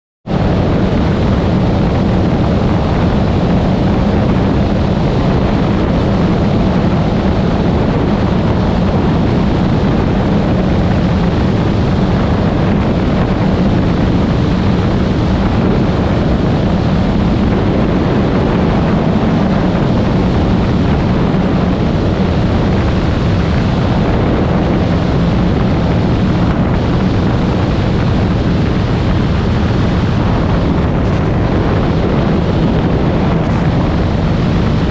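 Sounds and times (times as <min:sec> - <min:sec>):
propeller plane engine: 0:00.2 - 0:34.9
wind rush on microphone: 0:00.2 - 0:34.9.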